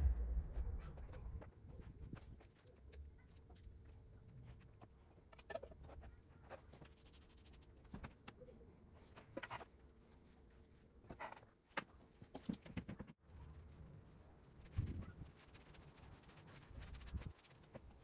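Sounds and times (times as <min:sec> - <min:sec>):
low background hum: 0:00.0 - 0:02.4.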